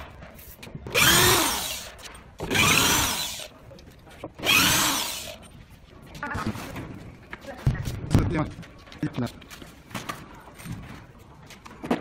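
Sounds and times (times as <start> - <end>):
electric drill driving screws: 0.9 - 3.5, 4.4 - 5.4.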